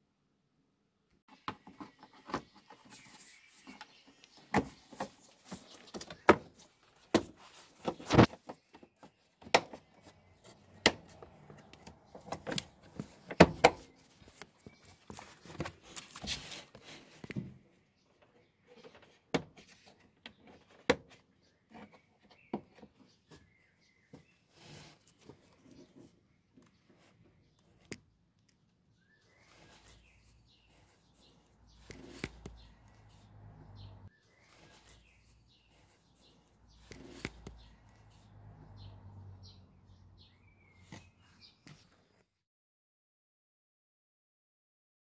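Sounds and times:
handling clicks knocks and rustles: 0:03.7 - 0:21.2.

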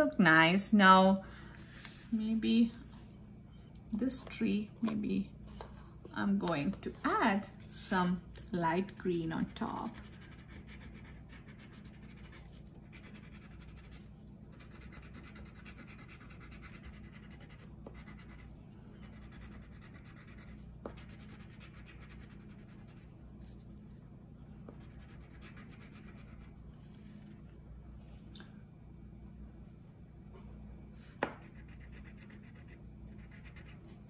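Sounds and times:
crayon scratching on paper: 0:09.4 - 0:18.5, 0:19.1 - 0:23.1.

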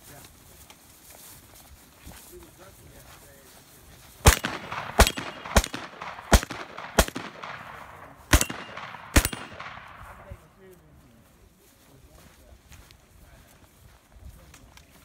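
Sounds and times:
shotgun shots echoing: 0:04.2 - 0:10.5.

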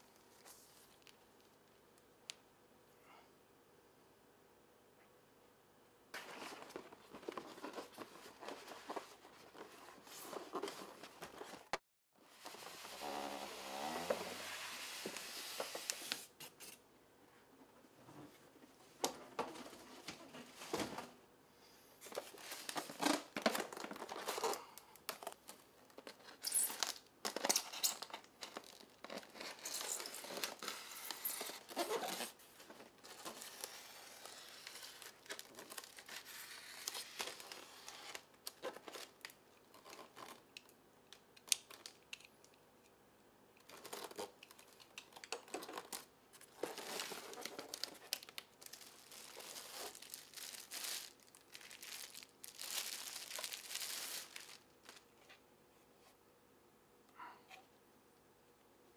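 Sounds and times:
plastic wrapping crinkling: 0:22.1 - 0:40.4, 0:43.6 - 0:55.1.

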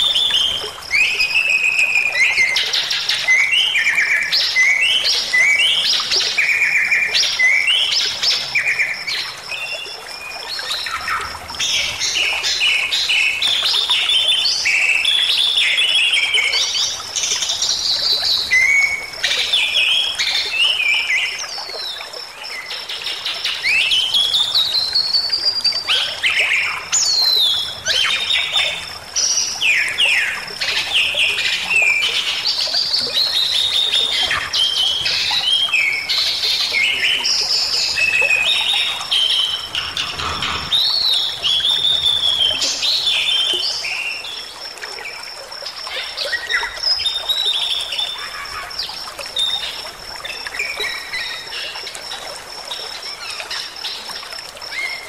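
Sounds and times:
bird singing and chattering: 0:36.7 - 0:41.2.

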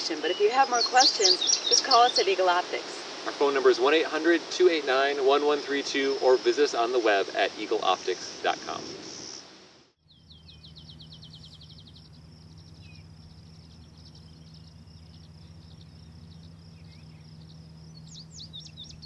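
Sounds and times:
birds singing: 0:00.0 - 0:04.0, 0:05.4 - 0:07.2, 0:10.0 - 0:19.0
steady low hum: 0:00.0 - 0:19.0.

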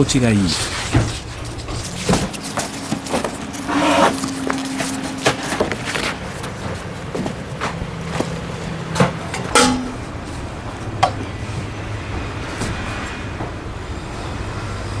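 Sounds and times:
low machine hum: 0:00.0 - 0:15.0
metal stove clinking: 0:09.0 - 0:10.4.

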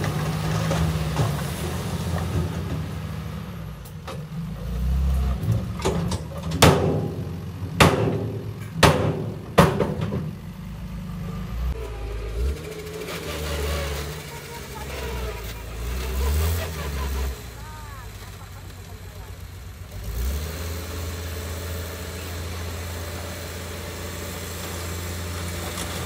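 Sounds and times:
diesel engine running: 0:00.0 - 0:26.0
sharp knocks: 0:06.6 - 0:10.3.

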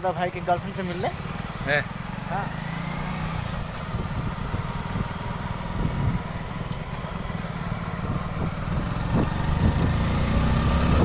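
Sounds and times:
motorbike engine running: 0:00.1 - 0:11.0
wind rumbling on microphone: 0:03.5 - 0:11.0.

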